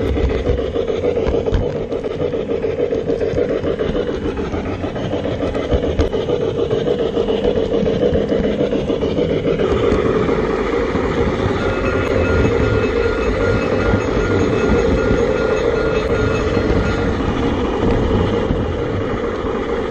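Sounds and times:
model train wheels rolling: 0.0s - 19.9s
rasping steam sound: 0.0s - 19.9s
faint steady tone: 10.9s - 18.6s.

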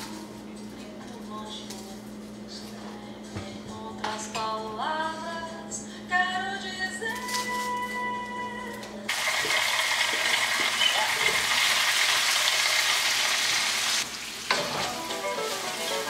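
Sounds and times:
vegetables sizzling in a pan: 9.1s - 16.0s.

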